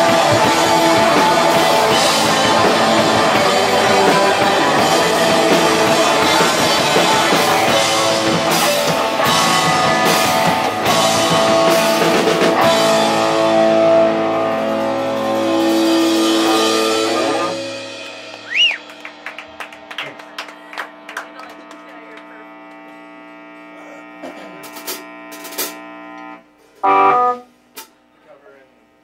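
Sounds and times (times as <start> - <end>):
ringing guitar chord: 0.0 - 18.4, 19.1 - 27.6
rock band playing loudly: 0.0 - 21.8, 26.8 - 27.4.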